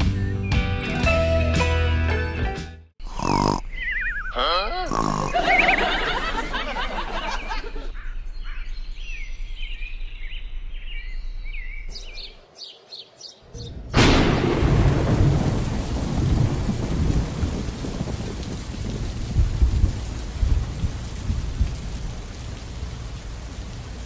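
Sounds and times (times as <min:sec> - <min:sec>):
thunder: 0:13.8 - 0:22.0
heavy rain: 0:13.9 - 0:24.0.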